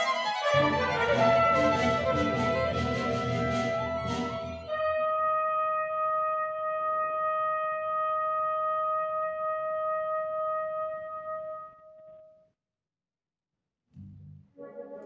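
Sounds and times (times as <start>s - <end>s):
wind instrument long high note: 0.0s - 9.0s
wind ensemble playing: 0.0s - 9.9s.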